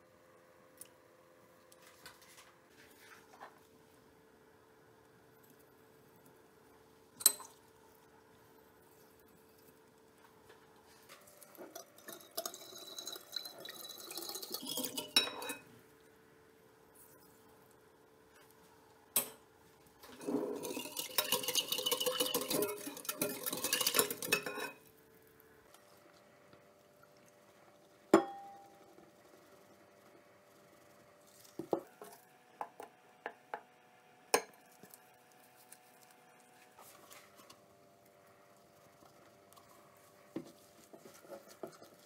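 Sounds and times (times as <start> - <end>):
whisk rattling against glass bowl: 11.7 - 15.6, 20.2 - 24.8.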